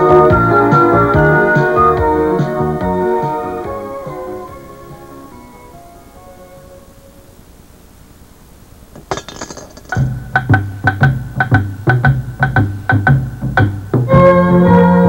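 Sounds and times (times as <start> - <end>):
tapping percussive beat: 9.9 - 14.1
steady bass line: 10.0 - 15.0.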